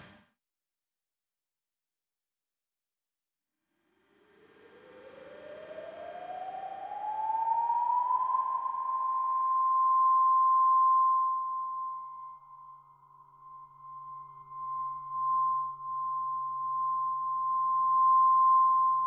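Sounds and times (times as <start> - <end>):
siren-like rising tone: 4.4 - 19.0.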